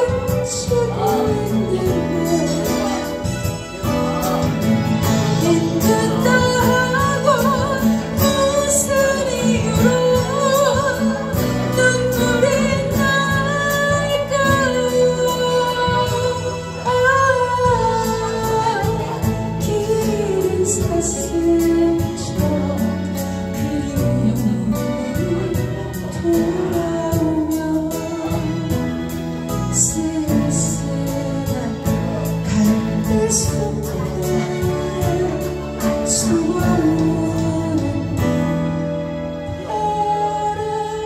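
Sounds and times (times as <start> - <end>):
strummed acoustic guitar: 0.0 - 40.6
woman singing with vibrato: 0.0 - 41.0.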